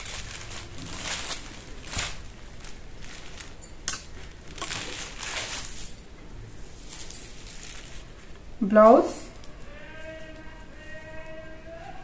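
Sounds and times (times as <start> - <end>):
fabric rustling and swishing: 0.0 - 6.0, 6.6 - 8.3
fabric crinkling: 0.0 - 8.4.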